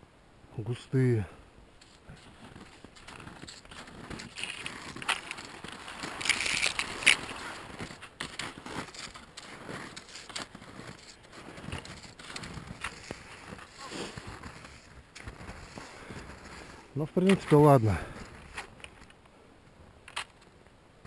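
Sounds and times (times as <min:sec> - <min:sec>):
skis crunching through snow: 0:01.8 - 0:19.0.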